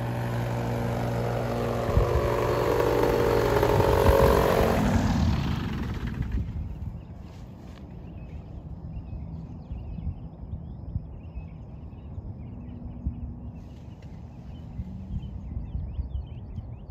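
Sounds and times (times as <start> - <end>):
wind rumbling on microphone: 0.0 - 16.9
small birds chirping: 5.9 - 16.9.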